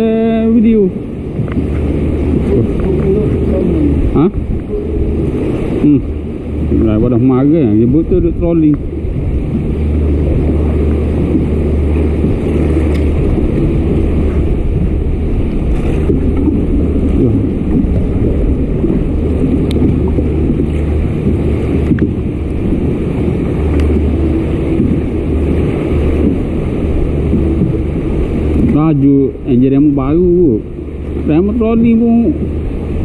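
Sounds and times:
engine low rumble: 0.0s - 33.0s
water around hull: 0.0s - 33.0s.

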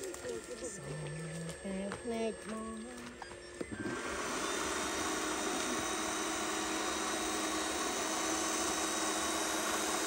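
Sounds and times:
model excavator mechanical whir: 3.3s - 10.0s.

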